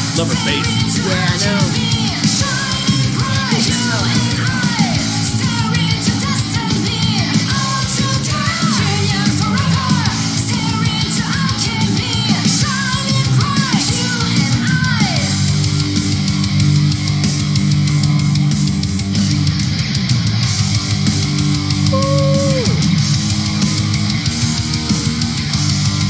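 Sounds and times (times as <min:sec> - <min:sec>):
heavy metal band playing: 0:00.0 - 0:05.3, 0:15.6 - 0:26.0
woman singing: 0:00.6 - 0:15.2.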